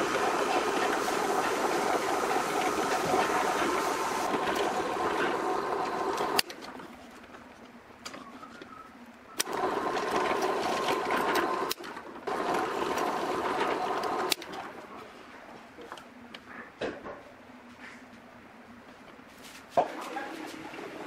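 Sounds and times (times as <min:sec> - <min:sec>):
drill press boring wood: 0:00.0 - 0:06.4, 0:09.4 - 0:14.8.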